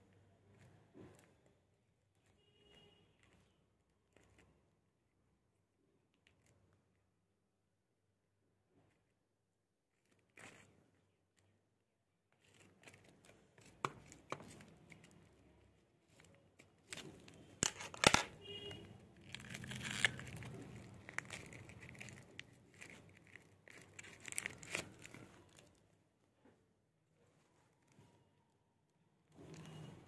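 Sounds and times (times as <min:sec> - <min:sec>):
scissors snipping paper: 0:12.4 - 0:18.6
paper tearing and crinkling: 0:16.1 - 0:18.6, 0:19.2 - 0:25.8.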